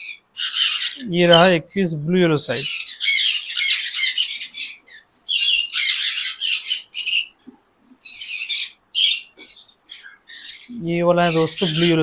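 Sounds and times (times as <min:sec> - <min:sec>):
parrots squawking: 0:00.0 - 0:07.4, 0:08.0 - 0:12.0.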